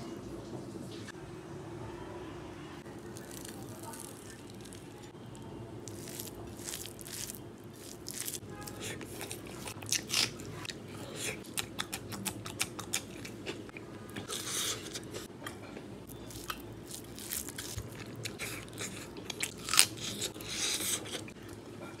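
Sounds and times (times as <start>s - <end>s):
wet chewing and lip smacks: 11.3s - 15.3s.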